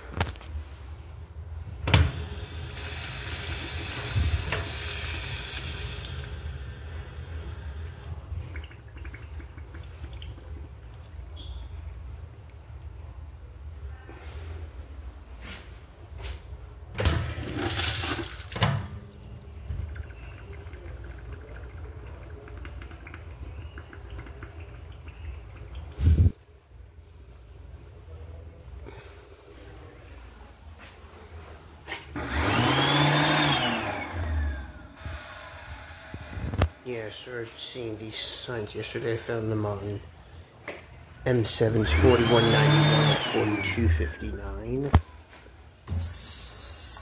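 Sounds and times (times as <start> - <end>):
flush valve clunk: 1.8 - 7.8
urinal flushing: 1.8 - 11.9, 17.0 - 26.4, 32.1 - 39.7, 41.4 - 44.3
water rushing through valve: 2.0 - 11.5, 32.2 - 36.8
water draining in bowl: 2.3 - 12.6, 17.4 - 26.2.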